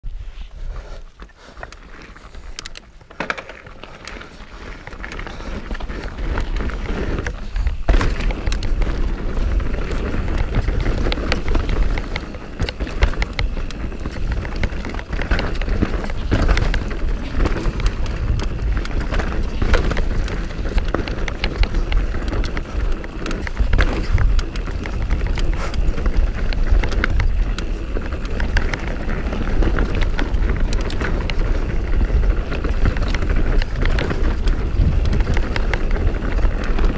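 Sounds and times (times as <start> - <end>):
bike tyres rumbling over dirt: 0.1 - 36.9
bike knocking and rattling: 1.0 - 36.9.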